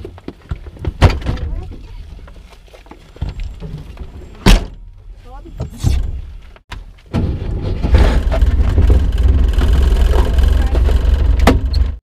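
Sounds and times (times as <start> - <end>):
car engine running: 8.2 - 12.0.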